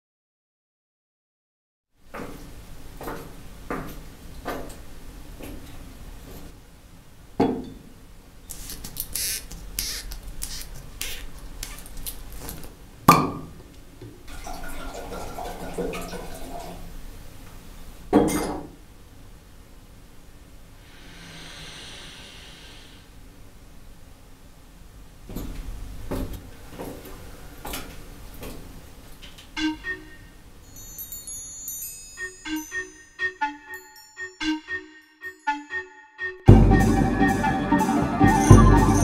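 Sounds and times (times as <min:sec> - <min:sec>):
corkscrew squeaking: 0:08.5 - 0:12.7
wine pouring into a glass: 0:14.3 - 0:16.8.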